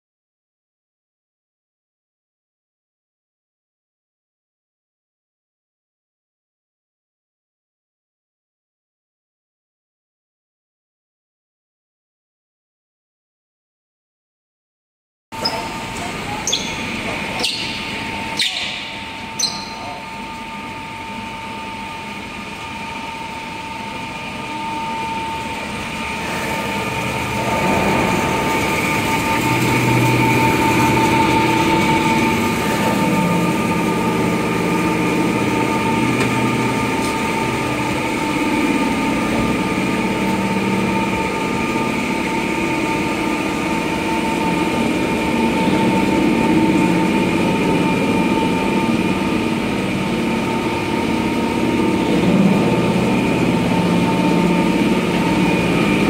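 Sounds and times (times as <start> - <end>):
electric motors whining: 15.4 - 56.0
low drone: 15.6 - 56.0.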